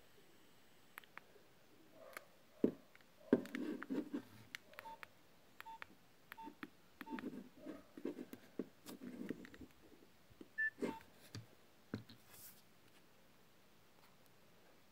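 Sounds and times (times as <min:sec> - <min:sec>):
phone keypad beeps: 0:04.8 - 0:07.3, 0:10.6 - 0:11.0
phone rubbing in hand: 0:10.6 - 0:11.1.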